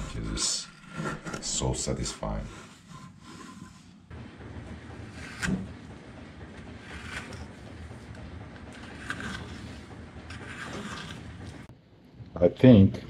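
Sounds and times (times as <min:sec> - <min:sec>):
knife scraping wood: 0:00.0 - 0:04.0, 0:05.0 - 0:05.8, 0:06.8 - 0:07.8, 0:08.6 - 0:11.7.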